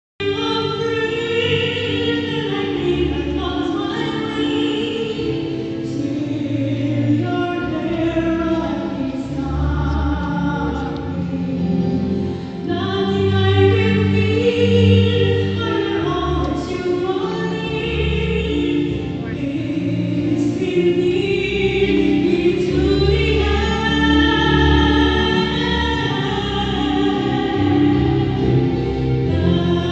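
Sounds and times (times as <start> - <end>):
choir singing in harmony: 20.4 - 29.9.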